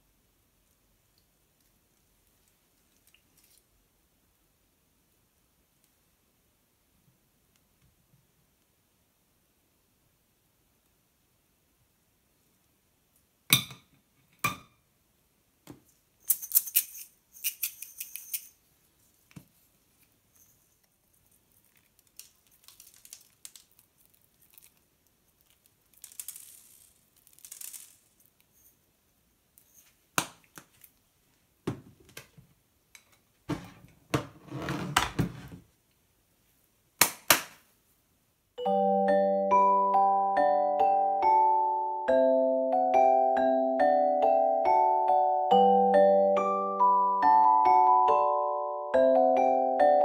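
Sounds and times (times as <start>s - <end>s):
shaker jar rattling: 16.2s - 18.6s, 25.6s - 28.7s.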